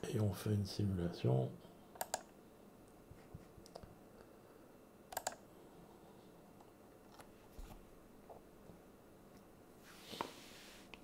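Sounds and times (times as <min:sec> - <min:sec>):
computer mouse clicks: 0:02.0 - 0:02.3, 0:03.6 - 0:03.9, 0:05.1 - 0:05.4.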